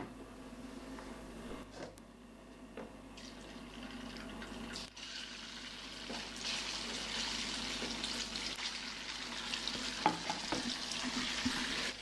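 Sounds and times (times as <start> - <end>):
food sizzling in oil: 4.7 - 12.0.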